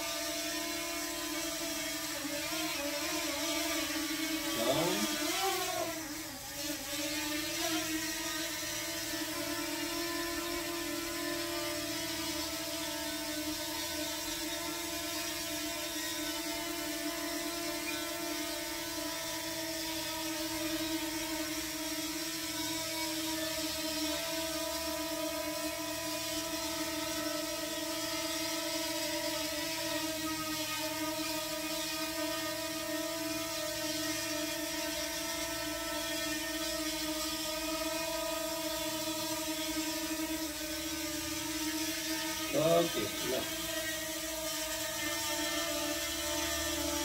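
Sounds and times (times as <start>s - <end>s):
drone propellers whining: 4.4s - 6.5s, 37.8s - 47.0s.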